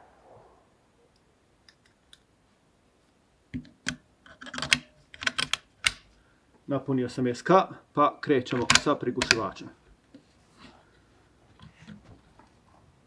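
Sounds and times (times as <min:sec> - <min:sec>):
rifle action clicking and knocking: 0:03.5 - 0:06.1, 0:08.5 - 0:09.6.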